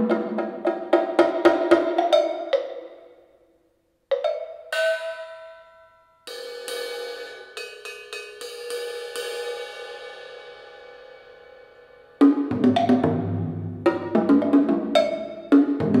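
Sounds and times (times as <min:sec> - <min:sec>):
drum and wood block hits: 0:00.0 - 0:03.0, 0:12.2 - 0:16.0
cymbal strokes ringing: 0:04.7 - 0:12.3.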